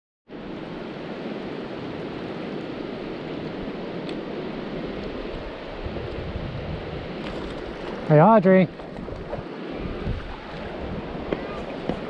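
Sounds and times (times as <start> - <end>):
river flowing over stones: 6.9 - 12.0.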